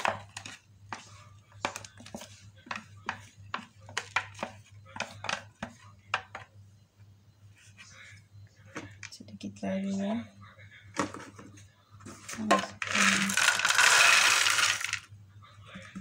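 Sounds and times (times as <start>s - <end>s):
spatula scraping plastic bowls: 0.0s - 6.5s, 12.1s - 15.1s.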